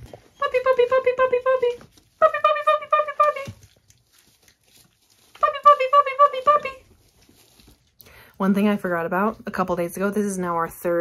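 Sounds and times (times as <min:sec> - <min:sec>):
woman calling in sing-song: 0:00.4 - 0:03.6, 0:05.4 - 0:06.9.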